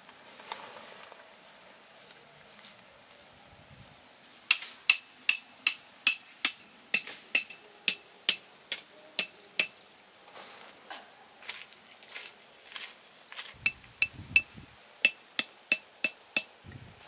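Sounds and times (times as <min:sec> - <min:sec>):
hatchet hammering tent stake: 0:04.5 - 0:09.8, 0:13.7 - 0:16.6.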